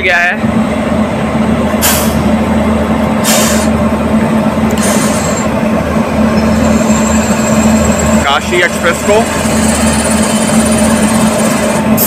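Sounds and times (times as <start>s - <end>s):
electric locomotive humming: 0.0s - 12.0s
compressed air hisses: 1.8s - 2.3s, 3.2s - 3.8s.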